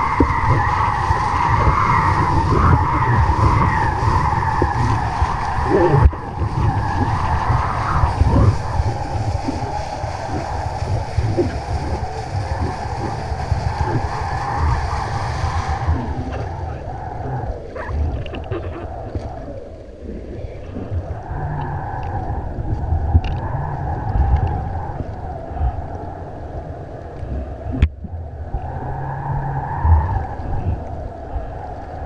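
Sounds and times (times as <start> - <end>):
wavering hum: 0.0 - 31.7
water splashes: 0.0 - 32.0
wind buffeting camera: 0.0 - 32.0.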